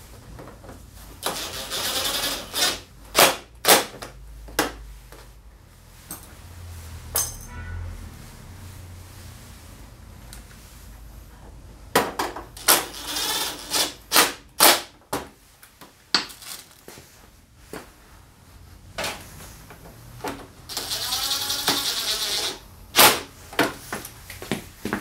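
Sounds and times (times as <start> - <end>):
cordless drill spinning screws: 1.2 - 2.8, 12.6 - 14.0, 20.7 - 22.6.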